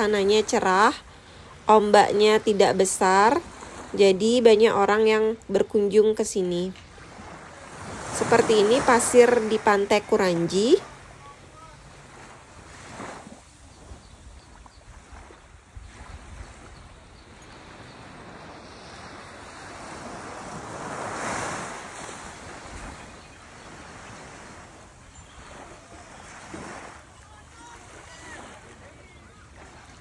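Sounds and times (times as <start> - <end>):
gentle waves washing on beach: 0.0 - 30.0
wind rumbling on microphone: 6.7 - 30.0.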